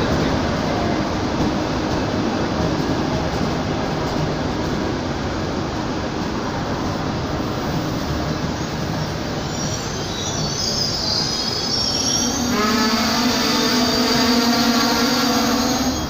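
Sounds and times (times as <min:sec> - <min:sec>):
train rumbling: 0:00.0 - 0:16.0
train wheels squealing: 0:07.7 - 0:16.0.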